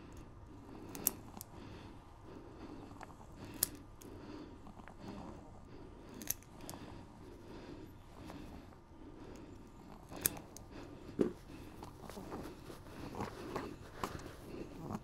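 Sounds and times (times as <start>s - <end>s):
nail clipper clicks: 0.9s - 1.5s, 3.4s - 3.9s, 6.1s - 6.8s, 10.1s - 10.7s.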